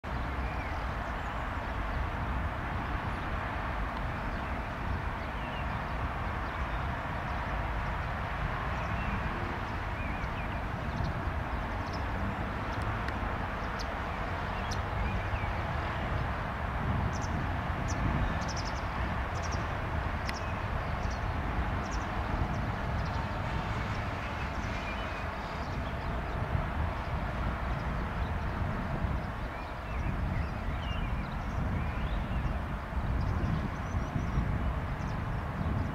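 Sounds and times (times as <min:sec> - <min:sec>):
outdoor background rumble and hiss: 0:00.1 - 0:35.9
light ticks: 0:20.2 - 0:20.5.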